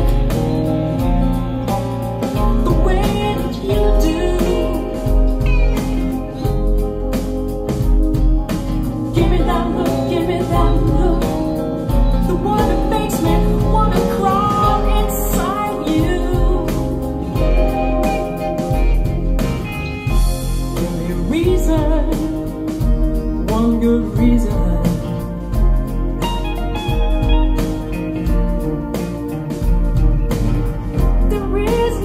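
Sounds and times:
woman singing over guitar and band: 2.4 - 6.3, 9.1 - 17.9, 20.8 - 25.6, 31.0 - 32.0.

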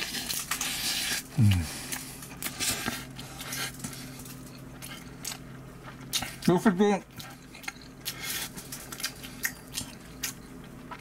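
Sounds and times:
person humming mm: 1.3 - 1.8.

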